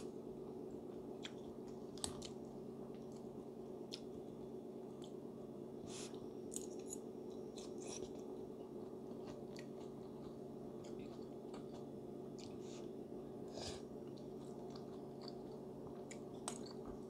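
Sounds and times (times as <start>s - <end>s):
steady low hum: 0.0s - 17.0s
person chewing: 1.0s - 3.3s, 3.9s - 4.2s, 5.9s - 17.0s.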